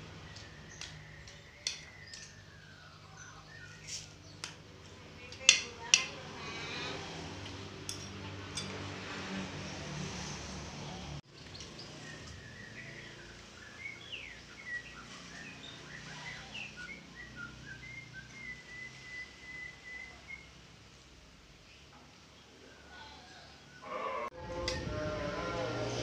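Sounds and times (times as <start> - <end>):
small birds chirping: 0.0 - 8.0, 11.2 - 23.8.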